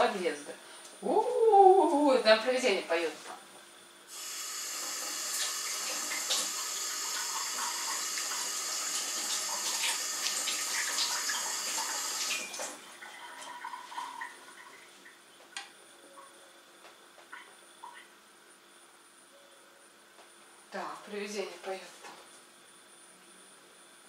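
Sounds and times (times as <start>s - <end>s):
kitchen tap running into sink: 4.2s - 14.8s.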